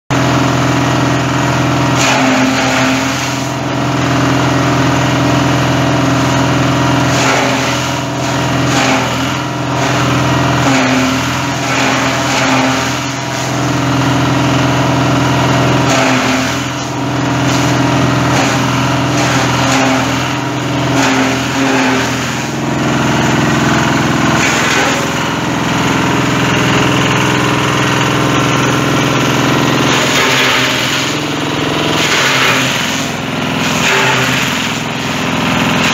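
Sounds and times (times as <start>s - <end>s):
stalk chopper crackles: 10.6s - 13.5s.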